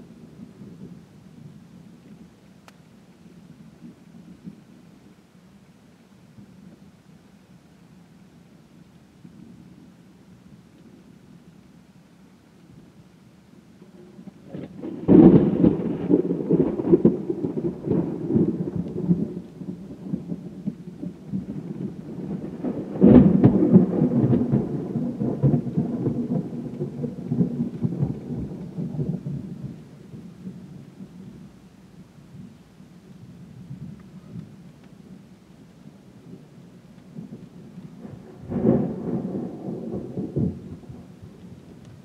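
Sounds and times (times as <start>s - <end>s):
thunder claps rumbling: 14.0s - 31.6s, 36.2s - 42.0s.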